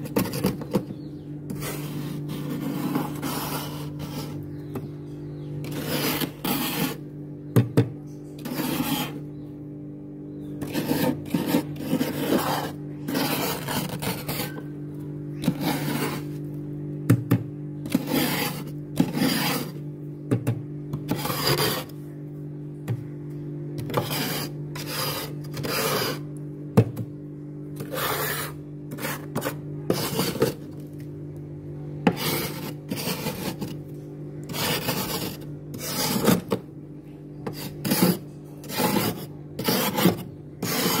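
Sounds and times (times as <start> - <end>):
metal spoon scraping ice: 0.0 - 4.6, 5.6 - 7.1, 8.3 - 9.3, 10.6 - 14.8, 15.4 - 16.5, 17.8 - 19.9, 21.0 - 22.0, 23.8 - 26.3, 27.8 - 30.8, 32.1 - 36.6, 37.4 - 41.0
steady low hum: 0.0 - 41.0.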